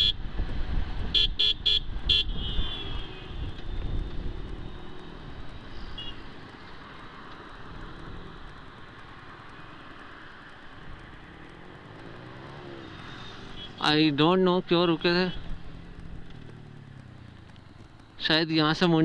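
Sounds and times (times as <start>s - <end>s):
wind and road noise: 0.0s - 19.0s
motorcycle engine running: 3.0s - 19.0s.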